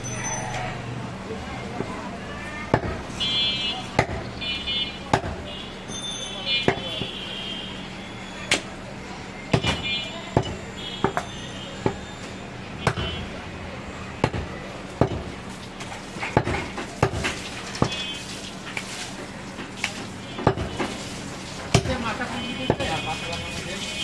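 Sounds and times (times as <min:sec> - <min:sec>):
cleaver chopping meat and bone: 0:02.7 - 0:03.1, 0:03.9 - 0:04.3, 0:05.0 - 0:05.5, 0:06.6 - 0:07.2, 0:09.5 - 0:12.1, 0:12.8 - 0:13.2, 0:14.2 - 0:15.4, 0:16.2 - 0:18.1, 0:20.4 - 0:20.9, 0:21.7 - 0:23.0.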